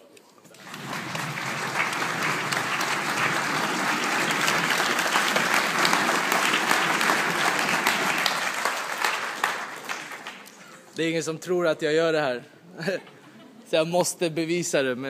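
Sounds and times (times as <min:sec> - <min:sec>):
audience applauding: 0:00.5 - 0:11.0.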